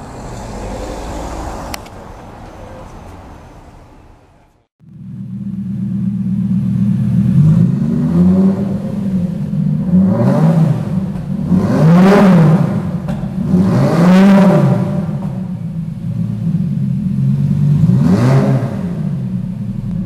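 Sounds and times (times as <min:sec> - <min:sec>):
car engine idling: 0:00.0 - 0:11.7, 0:14.7 - 0:18.0, 0:18.6 - 0:20.0
engine revving in throttle blips: 0:04.8 - 0:20.0.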